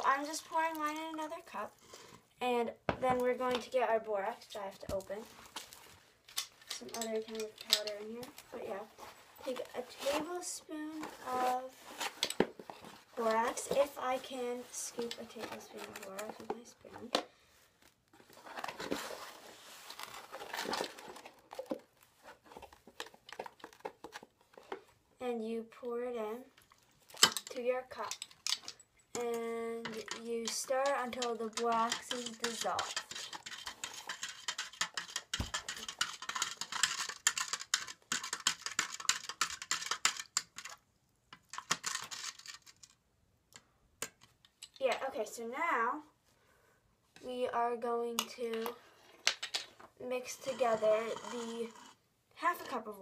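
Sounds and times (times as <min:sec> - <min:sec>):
plastic spoon stirring in cup: 0:05.2 - 0:17.2, 0:26.6 - 0:40.8, 0:41.4 - 0:43.0, 0:50.1 - 0:52.0
spoon scraping powder in box: 0:29.9 - 0:40.8, 0:50.2 - 0:52.0.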